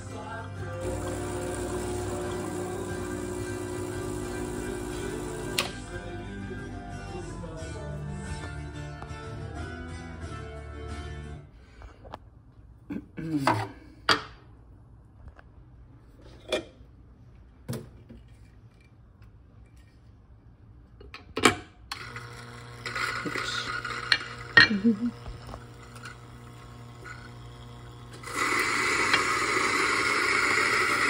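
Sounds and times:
coffee grinder grinding beans: 0.7 - 6.0, 21.9 - 31.0.

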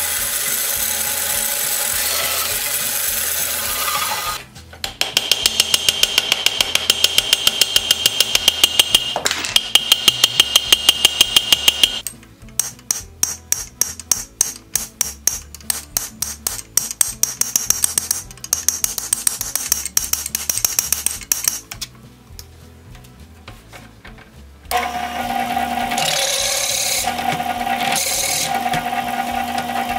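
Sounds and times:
hammer tapping steel punch: 4.8 - 21.7.

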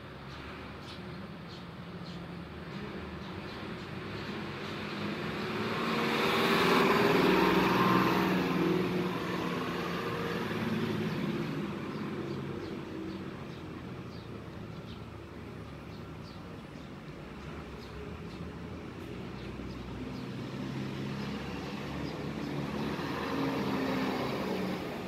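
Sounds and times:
vehicle passing: 3.4 - 15.0, 17.2 - 25.0.

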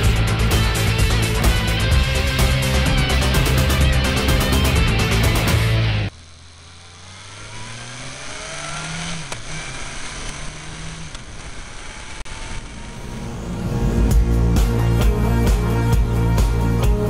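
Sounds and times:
rock music: 0.0 - 6.1, 13.6 - 17.0
motorcycle engine accelerating: 0.0 - 17.0.

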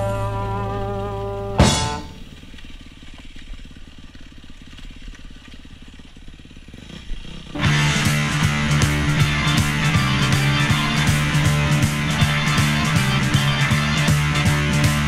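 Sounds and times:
rock music: 0.0 - 2.3, 7.6 - 15.0
dirt bike engine running: 0.0 - 15.0.

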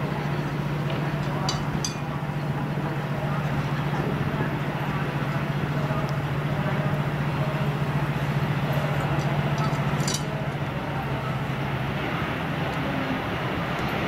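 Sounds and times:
electric locomotive hum: 0.0 - 14.0
wheels rumbling on rails: 0.0 - 14.0
high metallic clinks: 1.2 - 2.2, 9.2 - 10.4.

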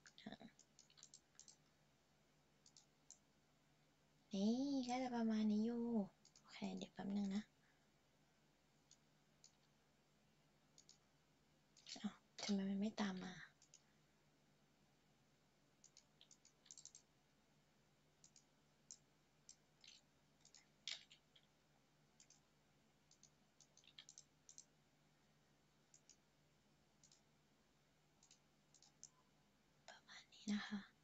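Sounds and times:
computer mouse clicks: 0.0 - 1.7, 2.6 - 3.3, 6.2 - 7.4, 8.8 - 9.7, 10.7 - 11.1, 11.8 - 13.9, 15.8 - 17.1, 18.2 - 21.5, 22.2 - 24.7, 25.8 - 26.3, 27.0 - 27.3, 28.2 - 29.2.

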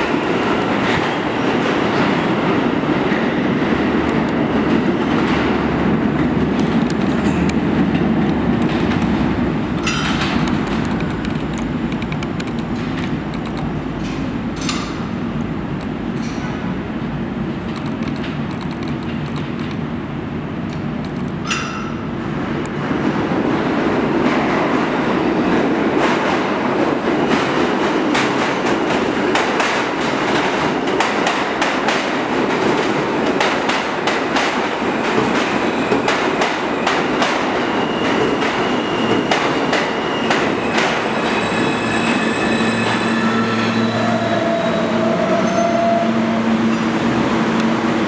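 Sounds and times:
train steady hum: 0.0 - 48.0
train wheels clacking over rail joints: 4.1 - 15.1, 26.0 - 41.1
brake squeal and whine: 40.0 - 46.4.

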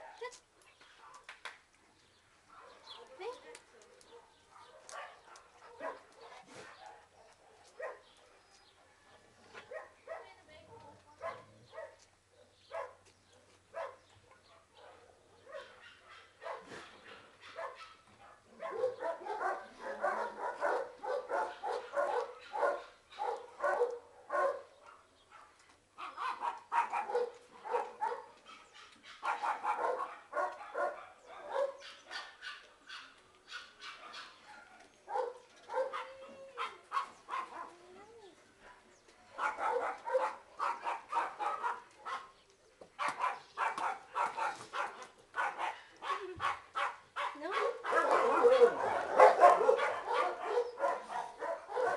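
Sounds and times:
dogs barking: 4.0 - 8.4, 9.7 - 13.0, 13.7 - 37.8, 39.4 - 42.4, 43.0 - 51.9.

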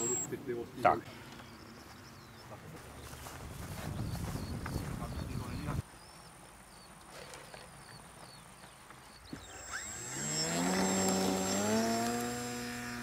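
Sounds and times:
bird chirps: 0.0 - 0.4, 1.1 - 10.5
model plane motor whining: 9.3 - 13.0.

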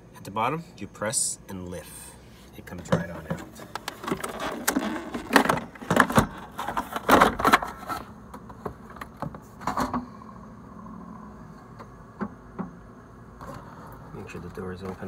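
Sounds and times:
low steady hum: 0.0 - 15.0
plastic ice bucket clattering: 2.8 - 8.1.

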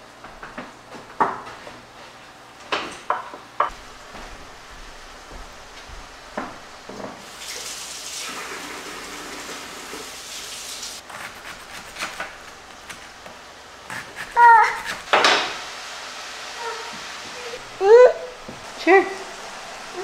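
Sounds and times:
kitchen tap running: 3.7 - 11.0, 14.4 - 20.0.

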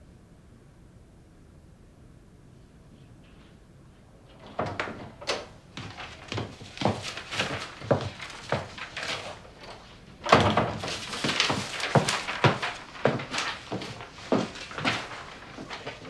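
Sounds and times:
door opening: 4.3 - 5.6
footsteps on wooden floor: 5.8 - 9.4, 10.6 - 16.0.

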